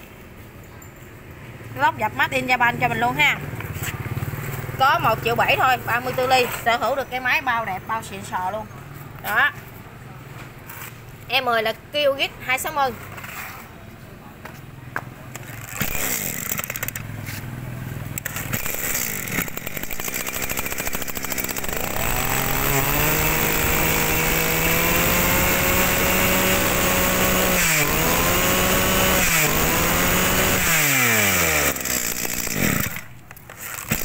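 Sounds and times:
brush cutter engine revving: 15.4 - 17.5, 18.1 - 34.0.

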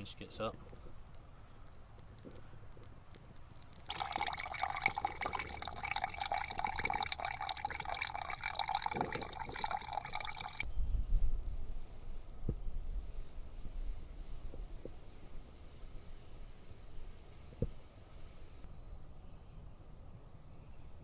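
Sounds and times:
water running into a metal pot: 3.9 - 10.6.

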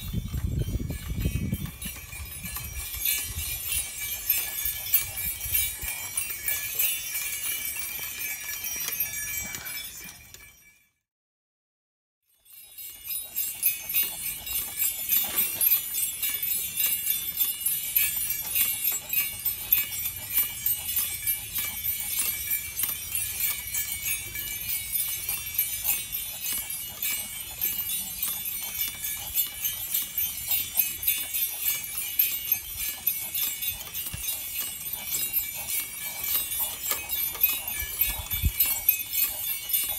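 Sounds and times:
metal harness jingling: 0.0 - 10.7, 12.3 - 39.9.

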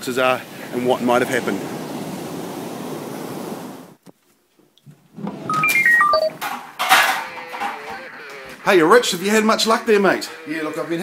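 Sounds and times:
waves washing on beach: 0.0 - 4.0
descending electronic beeps: 5.5 - 6.4.

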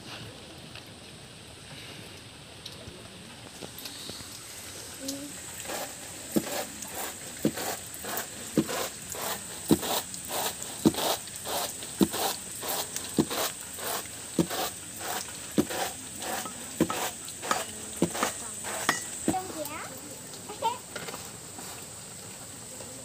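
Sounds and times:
insects rattling on bamboo tray: 3.9 - 23.0
winnowing tray beat: 5.5 - 19.6.

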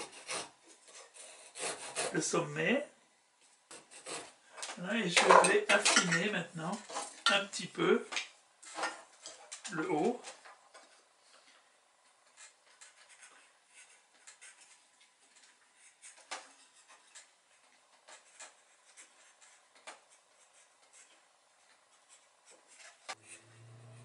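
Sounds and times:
knife scraping wooden stick: 3.7 - 4.4, 22.0 - 24.0.

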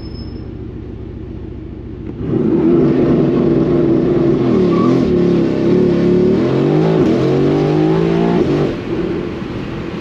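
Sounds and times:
car engine accelerating hard: 2.0 - 9.6.

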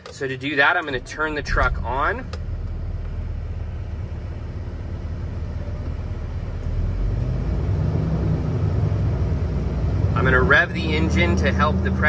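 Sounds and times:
truck diesel engine idling: 0.0 - 7.4.

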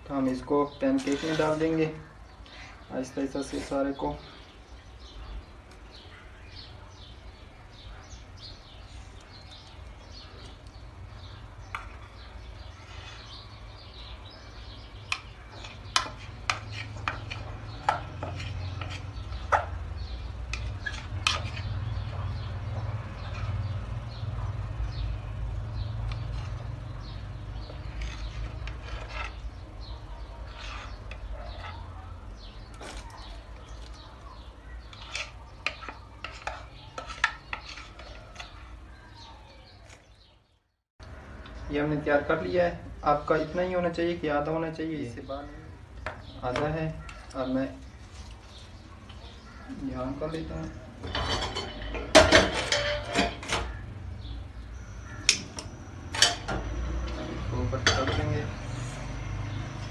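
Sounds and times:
spatula scraping container: 0.2 - 2.0, 3.2 - 4.0, 11.8 - 13.5, 15.1 - 19.8, 20.5 - 23.8, 27.6 - 29.8, 30.4 - 31.8, 34.8 - 38.9.

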